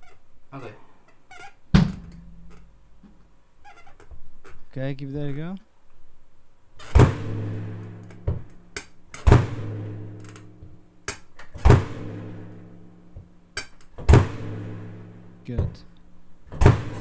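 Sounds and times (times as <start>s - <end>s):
bass drum strokes: 7.0s - 11.0s, 11.6s - 13.4s, 14.1s - 16.0s, 16.6s - 17.0s.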